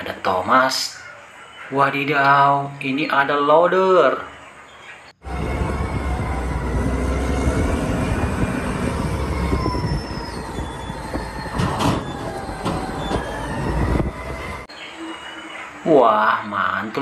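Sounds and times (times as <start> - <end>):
diesel loader engine under load: 5.2 - 14.7.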